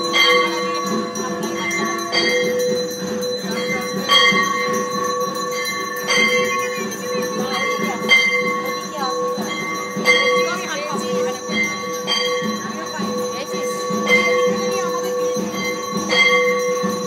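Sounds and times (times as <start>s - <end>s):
bells ringing: 0.0s - 17.0s.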